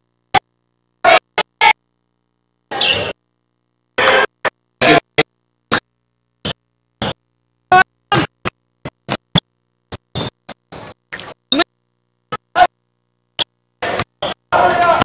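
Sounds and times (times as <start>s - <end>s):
basketball game noise: 2.7s - 3.2s, 4.0s - 11.7s, 13.8s - 15.0s.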